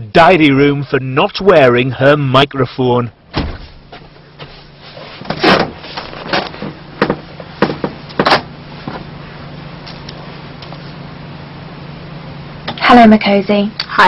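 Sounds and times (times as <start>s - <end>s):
steady low hum: 0.0s - 14.0s
sharp knocks and clunks: 3.3s - 4.0s, 5.2s - 9.0s.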